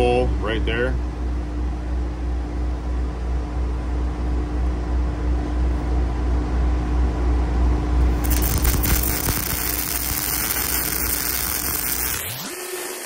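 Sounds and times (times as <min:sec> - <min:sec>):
welding arc crackling and hissing: 0:08.2 - 0:13.0.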